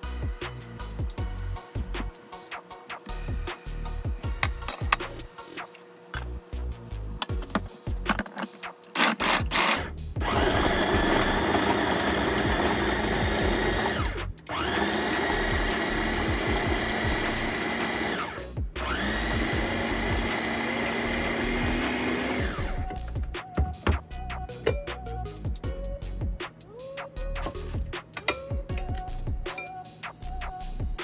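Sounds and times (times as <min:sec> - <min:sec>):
food chopper motor: 0:08.9 - 0:23.2.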